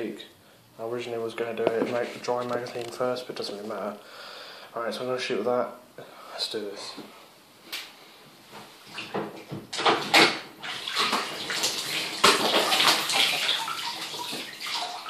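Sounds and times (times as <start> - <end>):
water splashing in bathtub: 8.8 - 15.0
water streaming into tub: 10.6 - 15.0.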